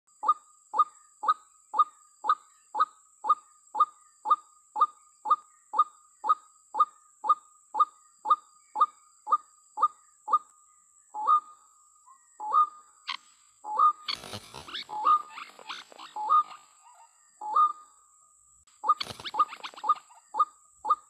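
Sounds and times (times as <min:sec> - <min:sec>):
waterhen lure call: 0:12.4 - 0:17.8, 0:18.8 - 0:21.0.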